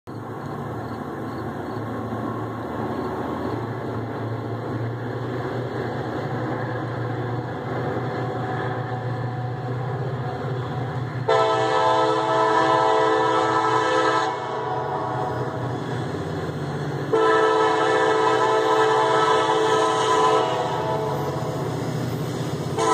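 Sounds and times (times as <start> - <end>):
diesel locomotive engine drone: 0.1 - 22.9
locomotive horn chord: 11.2 - 15.6, 17.1 - 21.6.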